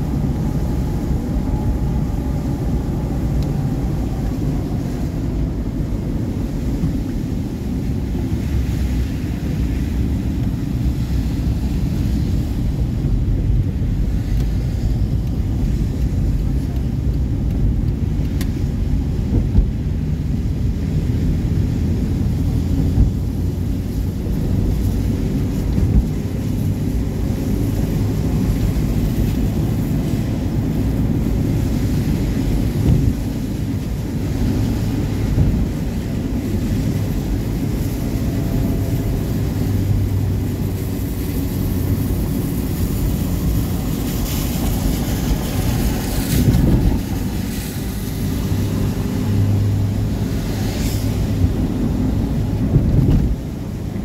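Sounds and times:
car engine and road drone: 0:00.0 - 0:54.0
tyre hiss on wet road: 0:18.8 - 0:54.0.

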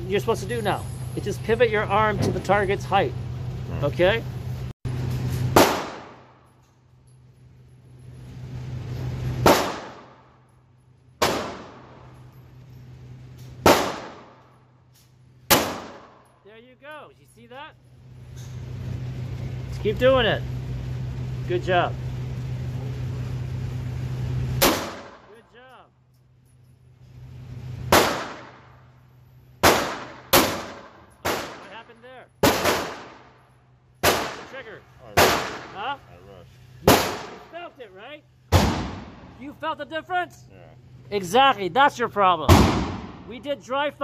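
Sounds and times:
handgun shots with echo: 0:05.5 - 0:06.3, 0:09.4 - 0:10.2, 0:11.2 - 0:12.0, 0:13.6 - 0:14.4, 0:15.5 - 0:16.2, 0:24.6 - 0:25.3, 0:27.9 - 0:28.6, 0:29.6 - 0:31.7, 0:32.4 - 0:33.3, 0:36.9 - 0:37.4, 0:42.5 - 0:43.2.

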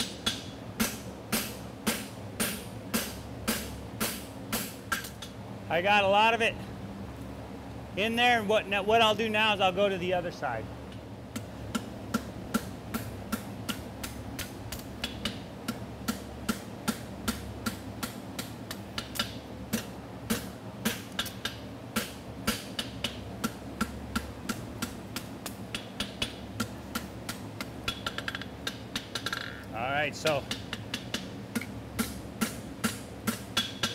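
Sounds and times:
low fan hum: 0:00.0 - 0:33.9.

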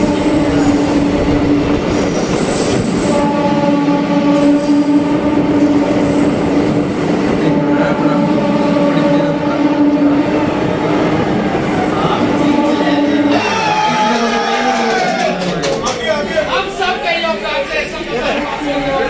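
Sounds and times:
train rumbling in tunnel: 0:00.0 - 0:19.0.

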